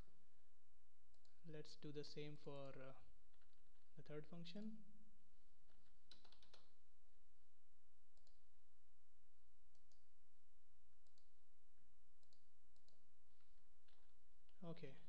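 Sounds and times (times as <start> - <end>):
faint low hum: 0.0 - 15.0
computer mouse clicks: 5.6 - 6.8, 8.1 - 8.4, 9.7 - 10.1, 11.0 - 11.3, 12.2 - 13.0.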